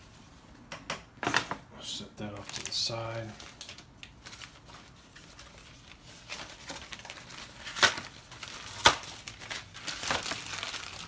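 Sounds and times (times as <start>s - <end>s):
packaging rustling and crinkling: 2.2s - 11.0s.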